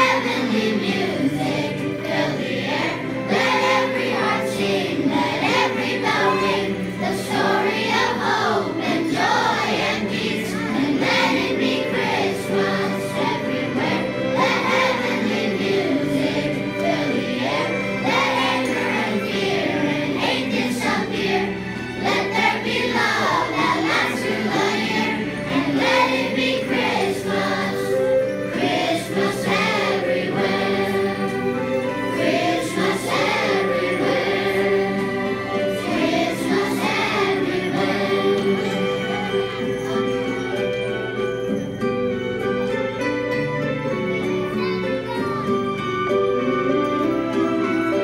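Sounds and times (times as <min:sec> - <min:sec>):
children's choir singing: 0:00.0 - 0:48.0
instrumental accompaniment: 0:00.0 - 0:48.0.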